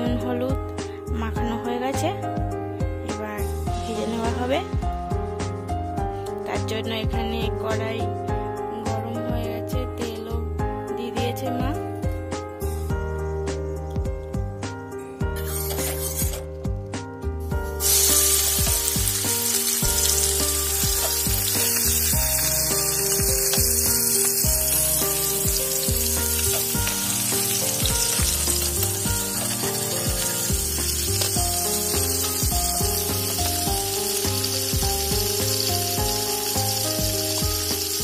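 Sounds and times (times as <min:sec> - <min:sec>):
background music: 0:00.0 - 0:38.0
fish frying in hot oil: 0:17.8 - 0:38.0.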